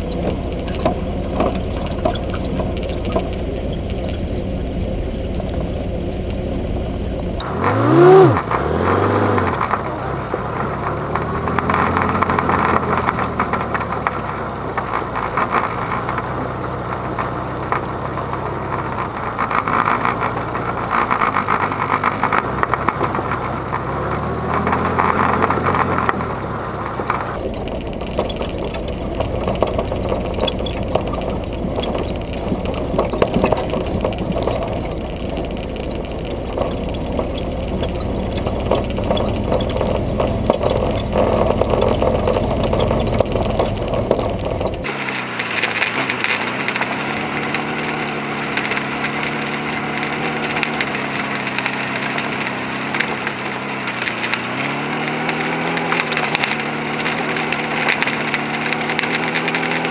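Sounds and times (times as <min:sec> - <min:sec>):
car engine running and revving: 0:00.0 - 0:59.9.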